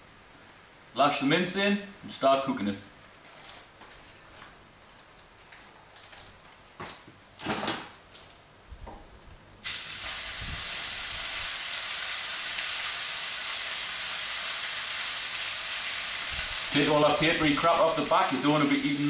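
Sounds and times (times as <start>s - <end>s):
meat sizzling in hot oil: 9.6s - 19.0s.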